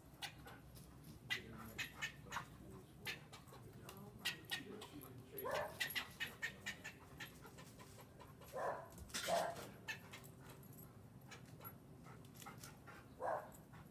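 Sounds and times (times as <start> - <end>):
squirrel chattering: 1.3 - 3.5, 5.6 - 7.4.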